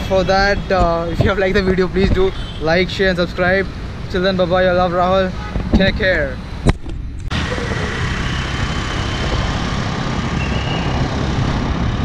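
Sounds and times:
road traffic rumble: 0.0 - 12.0
motorbike engine: 7.3 - 12.0.

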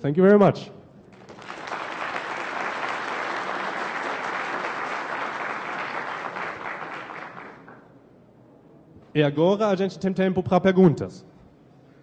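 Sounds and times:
audience applauding: 1.1 - 7.9.

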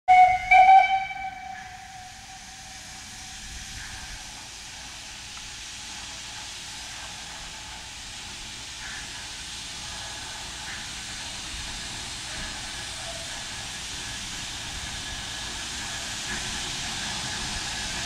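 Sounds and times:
steam whistle blast: 0.1 - 3.2
steam hissing: 0.1 - 18.0.

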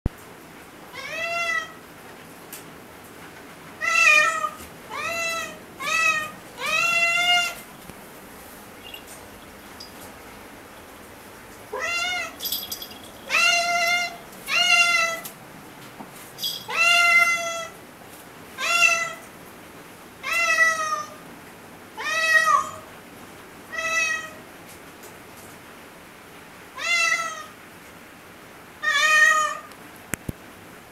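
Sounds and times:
cat meowing loudly: 0.9 - 1.8, 3.8 - 7.6, 11.7 - 12.4, 13.3 - 15.2, 16.7 - 17.8, 18.6 - 19.2, 22.0 - 22.8, 23.7 - 24.4, 26.8 - 27.6, 28.8 - 29.7.

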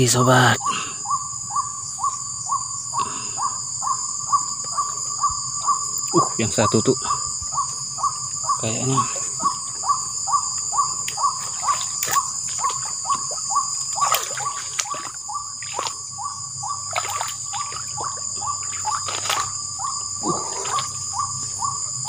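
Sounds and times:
insect trill: 0.0 - 22.0
rustles and splashes in water: 10.8 - 16.1, 16.8 - 22.0.

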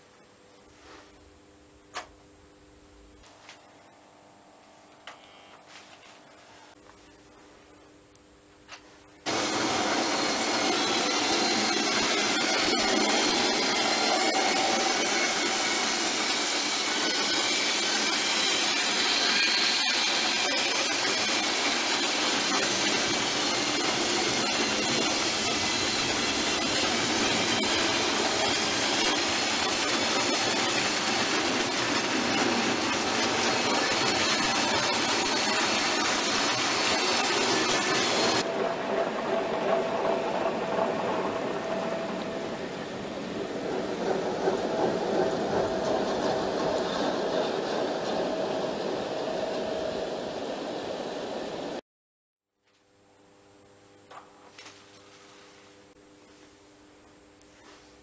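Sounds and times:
model train wheels rattling: 9.3 - 38.5.

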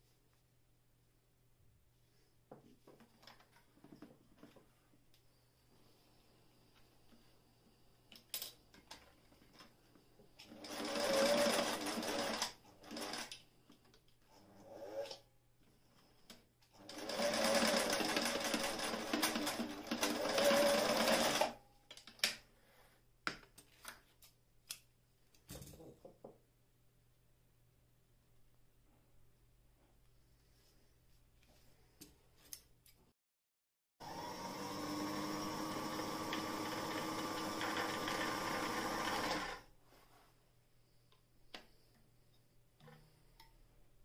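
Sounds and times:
sewing machine stitching: 10.4 - 13.3, 16.8 - 21.6, 34.2 - 39.7.

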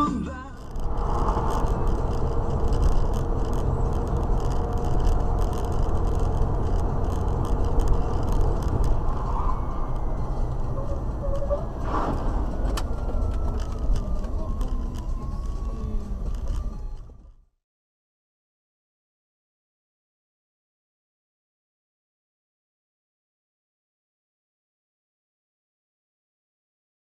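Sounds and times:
car road and engine rumble: 0.0 - 17.6
short rush of noise: 11.7 - 12.7.

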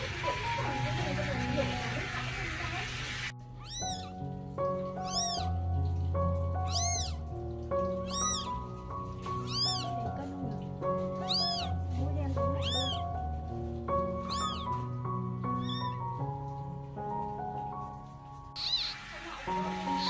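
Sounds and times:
kitten mewing: 3.5 - 4.2, 4.8 - 5.6, 6.6 - 8.6, 9.2 - 10.4, 11.0 - 13.2, 14.1 - 16.1, 18.6 - 20.0.

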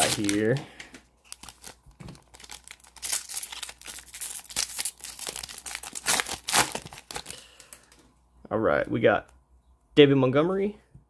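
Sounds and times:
plastic wrapper crinkling and tearing: 0.0 - 0.6, 1.2 - 7.9.

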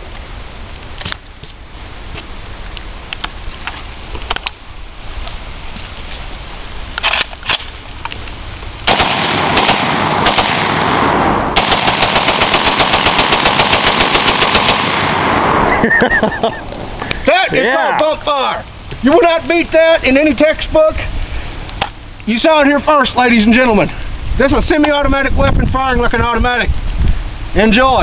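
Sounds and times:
rifle firing rapidly: 8.9 - 15.5.

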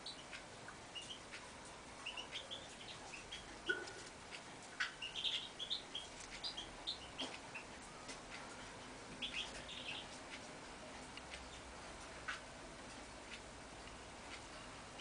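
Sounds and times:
bird chirping and twittering: 0.0 - 1.4, 2.0 - 4.1, 4.7 - 7.8, 9.2 - 10.2.

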